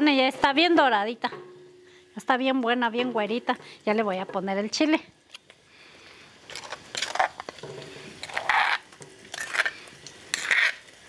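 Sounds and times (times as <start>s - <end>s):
metal spoon scraping stone bowl: 8.2s - 10.9s.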